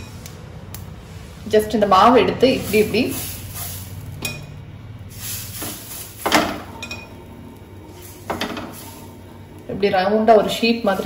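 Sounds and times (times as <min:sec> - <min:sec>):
steady low hum: 0:00.0 - 0:11.0
utensils clinking against cookware: 0:02.6 - 0:04.6, 0:05.6 - 0:07.2.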